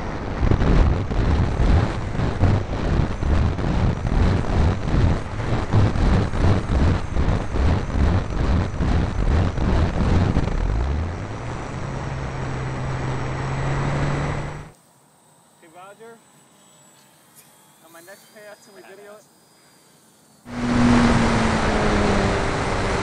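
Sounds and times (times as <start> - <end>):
wind on microphone: 0.0 - 14.7, 20.5 - 23.0
model plane motor humming: 0.0 - 23.0.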